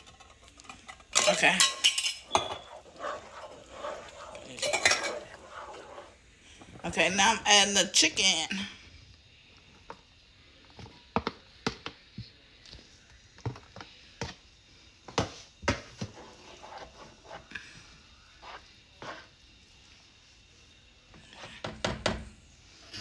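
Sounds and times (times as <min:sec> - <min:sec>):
spoon scraping a skillet: 0:00.0 - 0:07.8, 0:15.8 - 0:17.6, 0:18.3 - 0:19.4.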